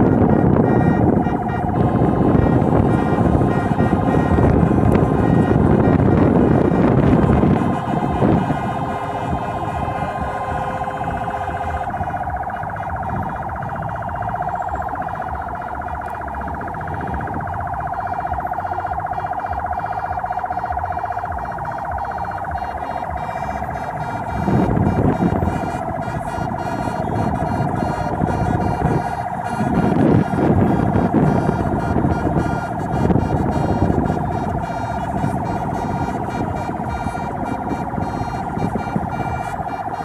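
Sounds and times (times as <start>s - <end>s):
car rumble: 0.0s - 40.0s
warbling vehicle siren: 0.0s - 40.0s.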